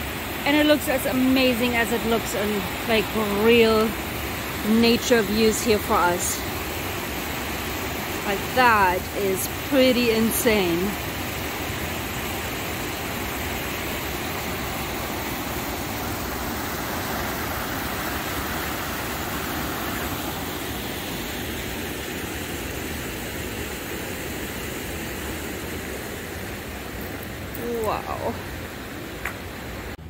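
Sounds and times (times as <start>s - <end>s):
waterfall rushing water: 0.0s - 30.0s.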